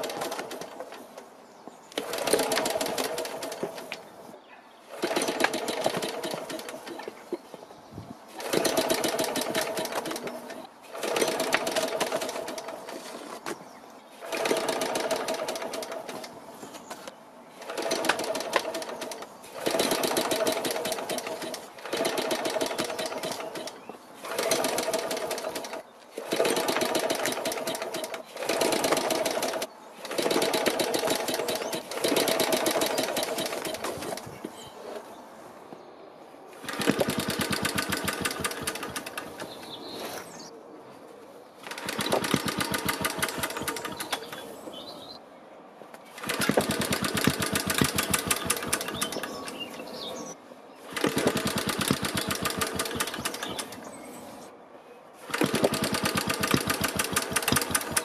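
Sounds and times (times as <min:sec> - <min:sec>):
engine cranking clatter: 0:00.0 - 0:01.0, 0:02.0 - 0:04.0, 0:04.9 - 0:07.2, 0:08.3 - 0:13.0, 0:14.2 - 0:16.4, 0:17.6 - 0:34.3, 0:36.6 - 0:39.6, 0:41.6 - 0:44.4, 0:46.1 - 0:49.7, 0:50.8 - 0:53.9, 0:55.2 - 0:58.0.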